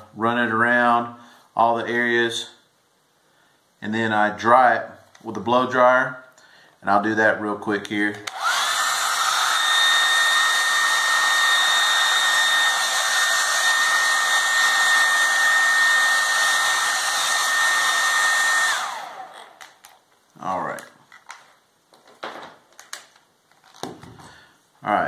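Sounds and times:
hair dryer motor whine: 8.2 - 19.8.

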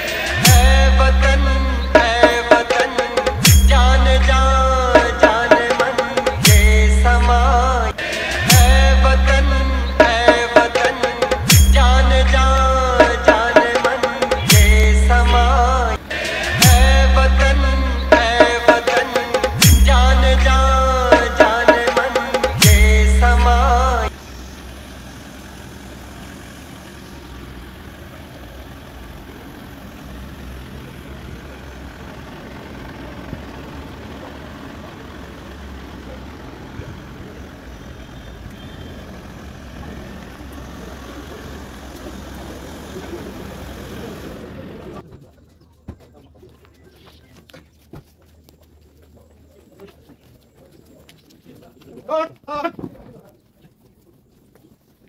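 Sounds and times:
low outdoor rumble: 0.0 - 51.0
vehicle engine running slowly: 0.0 - 52.0.

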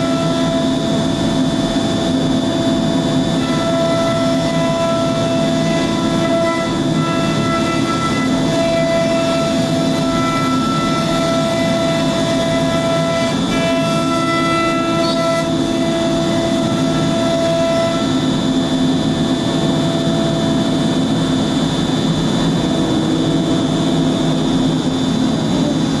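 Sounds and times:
cnc router spindle cutting wood: 0.0 - 26.0.

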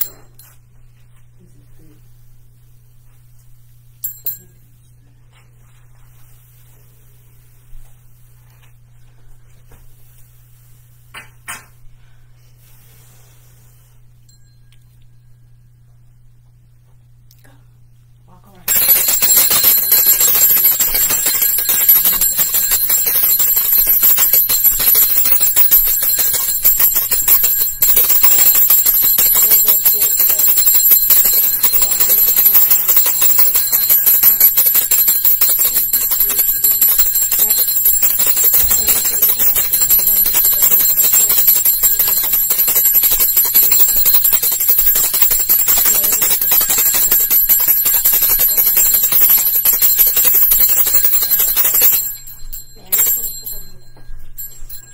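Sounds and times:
hand bell ringing: 0.0 - 0.6, 4.0 - 4.6, 18.7 - 54.9.

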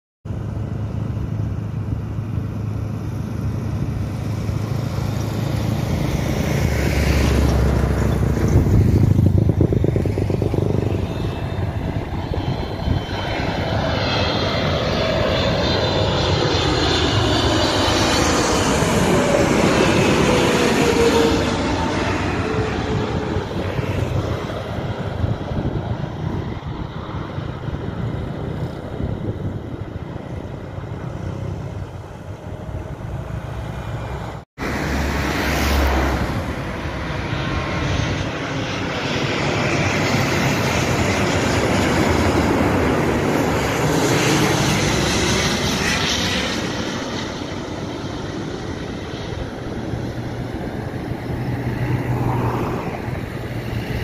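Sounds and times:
jet airliner passing overhead: 0.3 - 54.0.

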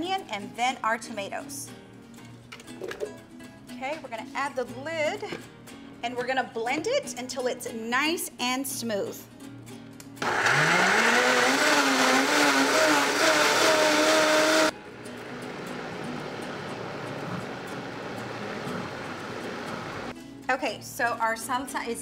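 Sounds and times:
blender motor whining: 10.2 - 14.8, 15.4 - 20.1.

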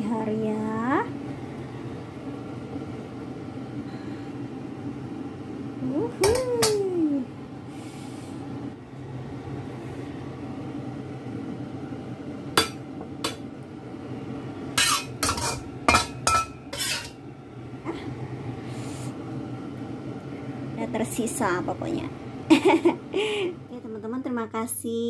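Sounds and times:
steady low hum: 0.0 - 25.0
metal utensil scraping a wok: 14.8 - 17.2.

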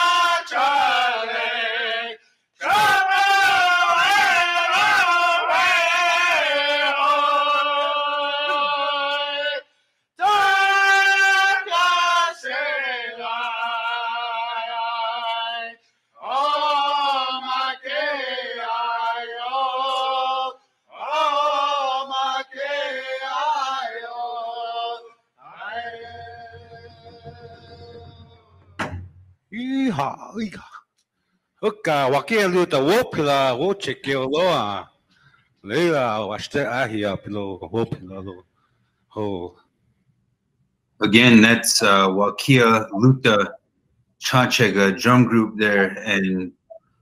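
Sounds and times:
men singing a chant with drum group: 0.0 - 9.6, 10.2 - 15.6, 21.0 - 28.4.

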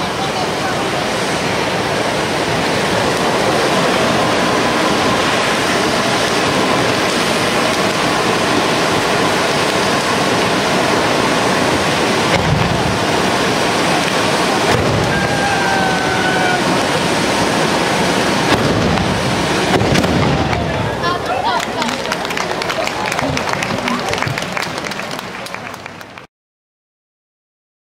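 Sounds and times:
fireworks spraying hiss: 0.0 - 22.0.

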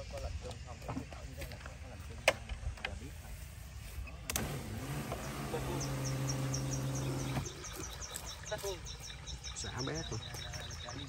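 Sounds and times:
insects ticking faintly: 0.0 - 3.1
nozzles misting spray: 2.8 - 7.6
spray pump humming: 4.0 - 9.0.

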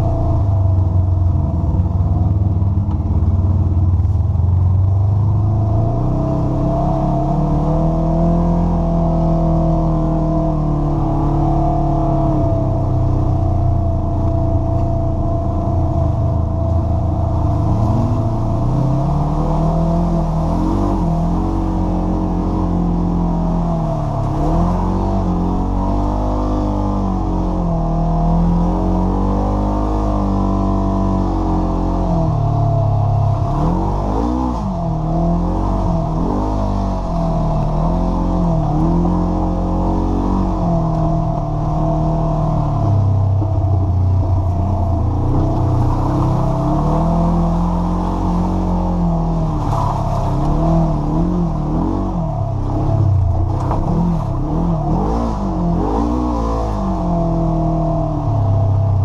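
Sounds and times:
off-road vehicle engine revving: 0.0 - 59.0.

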